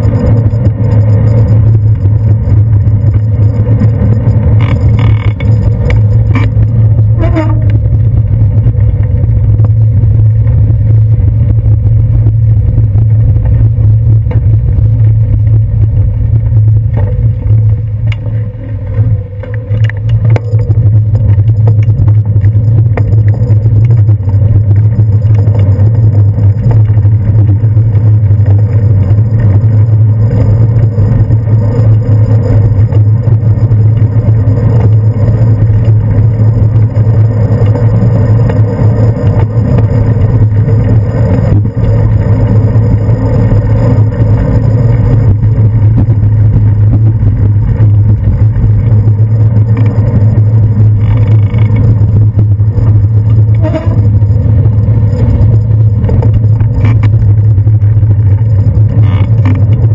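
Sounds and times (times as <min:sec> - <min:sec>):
wind and road rumble: 0:00.0 - 0:59.9
rising squeal: 0:50.1 - 0:56.7.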